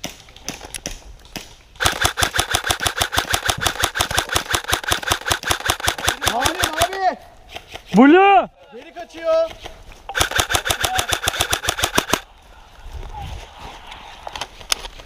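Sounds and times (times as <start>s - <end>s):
airsoft rifle firing full auto: 1.8s - 7.0s, 10.1s - 12.2s.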